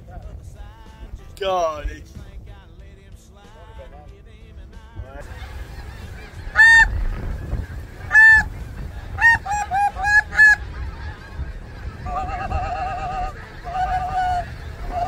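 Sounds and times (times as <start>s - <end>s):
goose honking: 5.1s - 15.0s.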